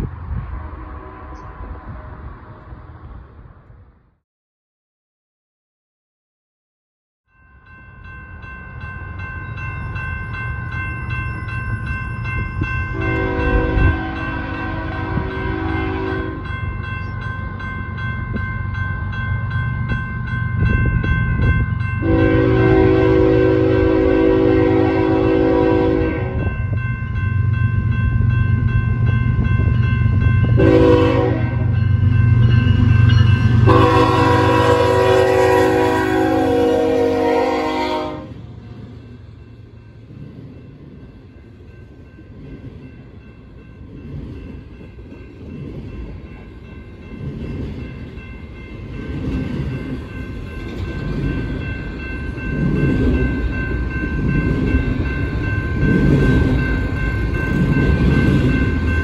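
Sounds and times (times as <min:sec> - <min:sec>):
locomotive air horn blasts: 0:13.0 - 0:16.5, 0:22.0 - 0:26.5, 0:30.6 - 0:31.8, 0:33.6 - 0:38.4.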